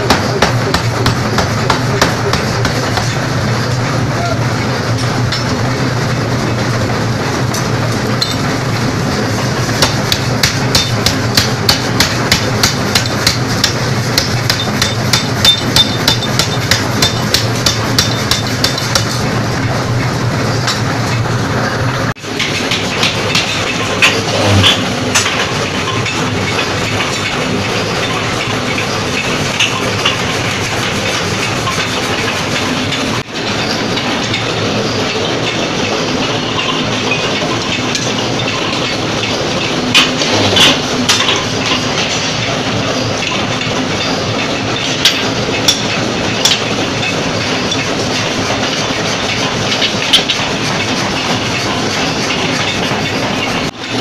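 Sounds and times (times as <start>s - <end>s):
machine drone: 0.0s - 54.0s
metal clanks: 4.6s - 6.6s, 7.4s - 54.0s
power hammer blows: 22.3s - 42.5s.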